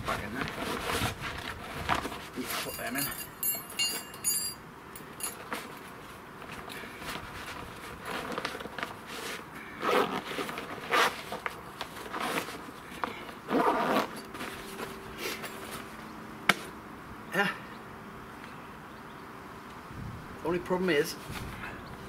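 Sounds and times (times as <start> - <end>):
fabric rustling: 5.3 - 16.0
zip being pulled shut: 9.1 - 12.7, 13.4 - 14.6.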